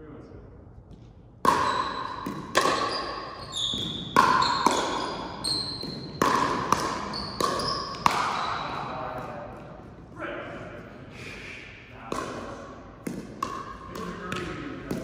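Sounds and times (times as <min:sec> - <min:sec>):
ball bouncing on gym floor: 0:00.9 - 0:11.0, 0:12.0 - 0:15.0
paddles striking plastic ball: 0:05.8 - 0:10.0, 0:12.1 - 0:15.0.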